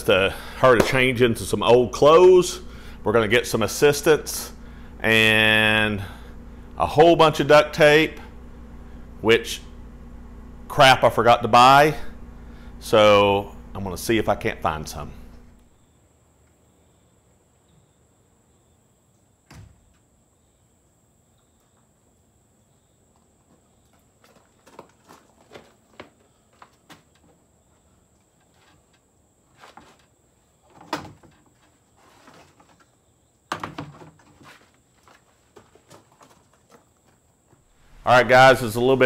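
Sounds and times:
knocks and clunks of handling things: 23.2s - 37.7s.

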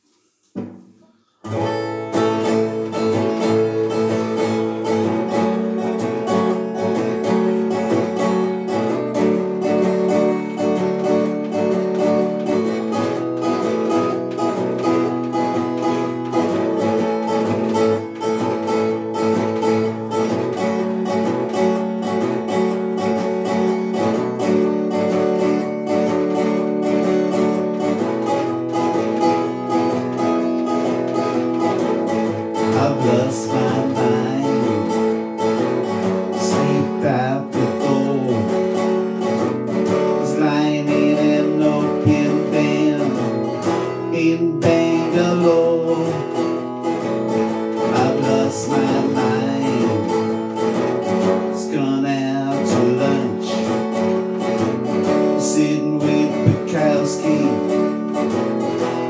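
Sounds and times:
resonator guitar strumming: 0.0s - 59.0s
brief knock: 0.5s - 1.0s.

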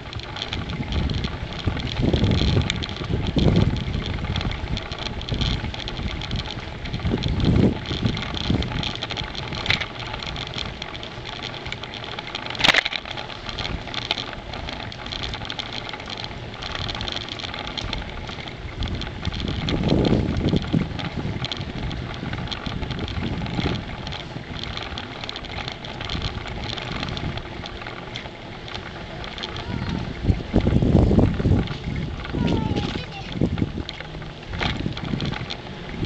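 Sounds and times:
bicycle rolling on tarmac: 0.0s - 36.0s
wind rumble on microphone: 0.0s - 36.0s.

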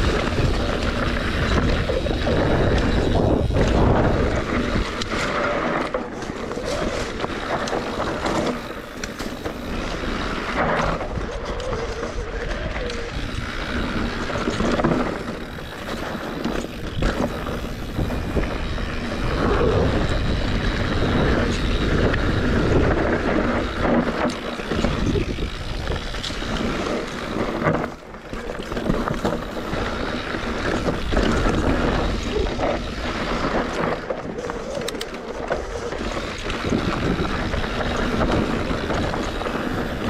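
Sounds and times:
bike rattling and knocking: 0.0s - 40.0s
bike tyres crunching over dirt: 0.0s - 40.0s
wind buffeting microphone: 0.0s - 40.0s.

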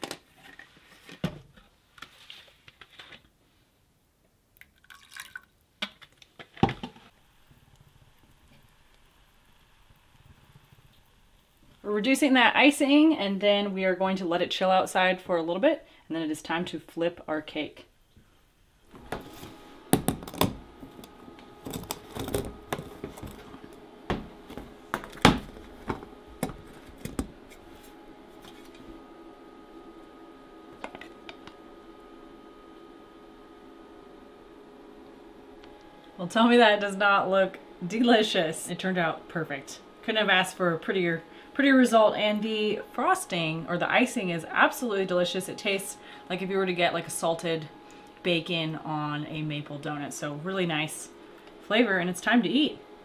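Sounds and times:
faint steady hiss: 0.0s - 21.8s
liquid pouring and dripping: 4.6s - 5.6s.

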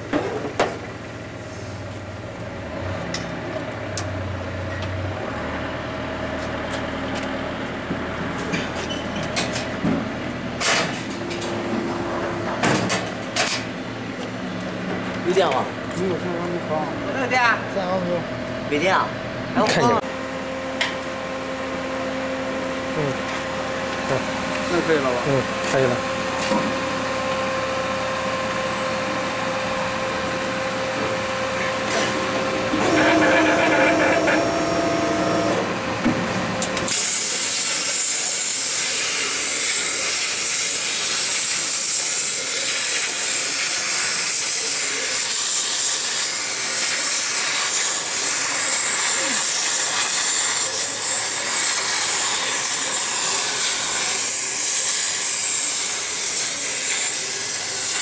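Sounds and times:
steady hum with held tones: 19.6s - 37.4s
plasma cutter hissing: 36.8s - 58.0s.

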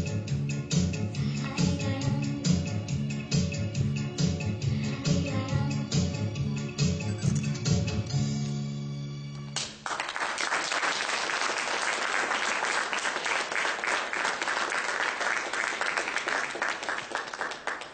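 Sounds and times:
dance music: 0.0s - 8.1s
audience applause: 9.6s - 17.9s.

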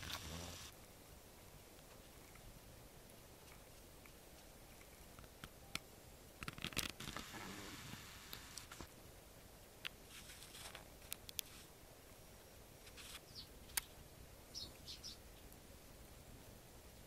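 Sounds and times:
sparrows chirping: 13.2s - 15.6s.

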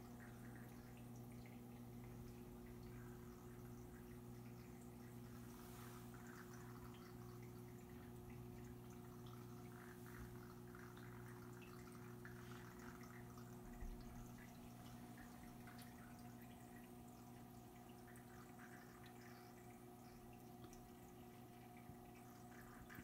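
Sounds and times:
aquarium equipment hum: 0.0s - 23.0s
water trickling and dripping: 0.0s - 23.0s.

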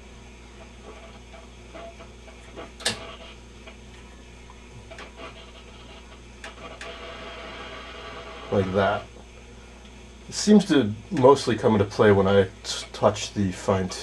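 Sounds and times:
steady low hum: 0.0s - 14.0s
television control clicks: 2.8s - 3.1s.

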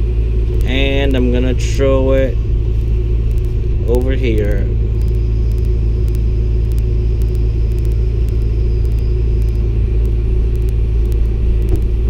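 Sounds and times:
excavator engine and hydraulics: 0.0s - 12.0s
faint high whine: 0.0s - 12.0s
faint high clicks: 3.2s - 11.9s.

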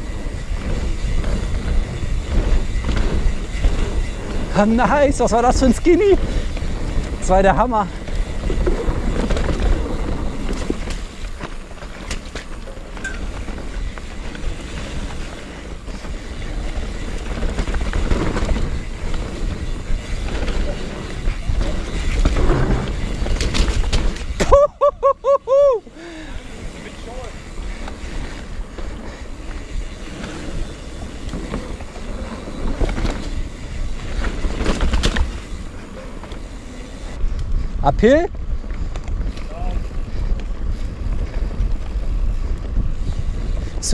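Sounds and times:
tyres rolling over dirt: 0.0s - 24.7s, 25.8s - 37.2s
wind buffeting microphone: 0.0s - 24.9s, 36.5s - 43.9s
bike rattling: 0.0s - 43.9s.

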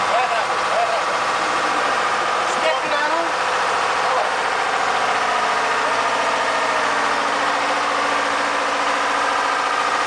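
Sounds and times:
boat engine running: 0.0s - 10.0s.

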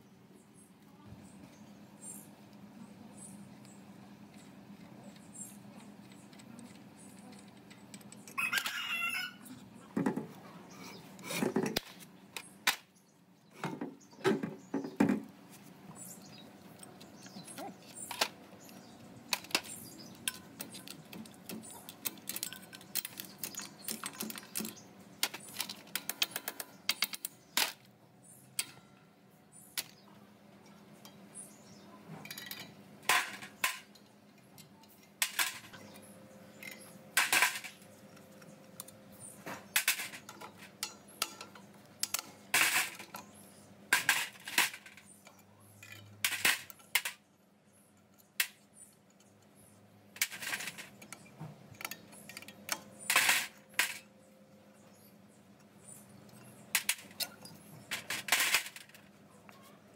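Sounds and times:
metal tools clinking: 16.8s - 27.2s.

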